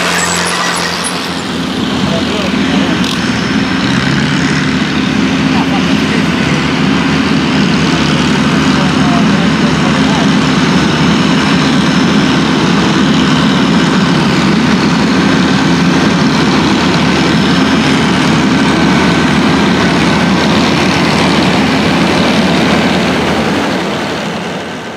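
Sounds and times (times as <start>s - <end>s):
thin high whine: 0.0s - 12.1s
tractor diesel engine under load: 0.0s - 24.9s.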